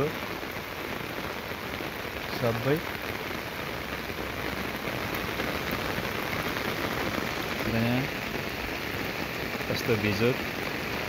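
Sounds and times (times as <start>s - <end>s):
heavy rain on standing water: 0.0s - 11.0s.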